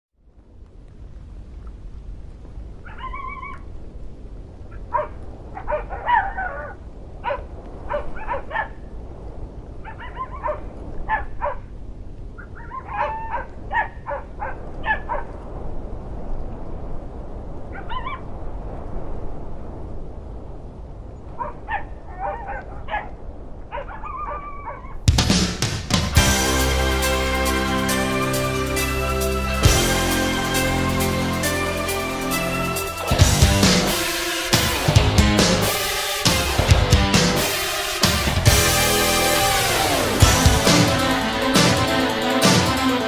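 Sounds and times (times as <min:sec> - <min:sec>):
dog-like barks or yips: 0:02.8 - 0:03.7, 0:04.7 - 0:08.8, 0:09.8 - 0:11.7, 0:12.4 - 0:15.4, 0:17.7 - 0:18.3, 0:21.4 - 0:25.0
low rushing noise: 0:25.0 - 0:43.0.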